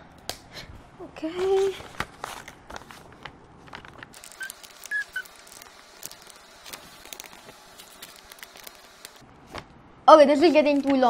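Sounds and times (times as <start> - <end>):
tiny pen squeaks: 4.4 - 5.3.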